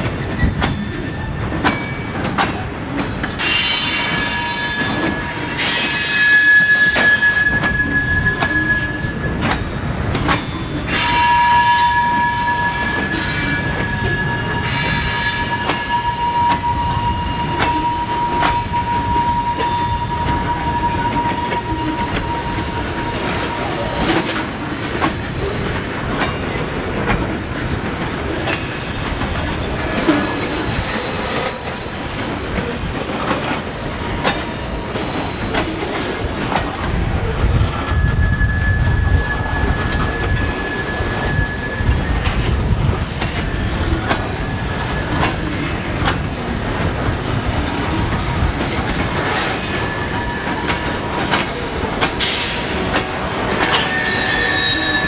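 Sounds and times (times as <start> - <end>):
train wheels clicking over rail joints: 0.0 - 38.2, 38.8 - 55.0
low train rumble: 0.0 - 55.0
high wheel squeal: 3.4 - 9.7, 10.4 - 24.5, 37.4 - 55.0.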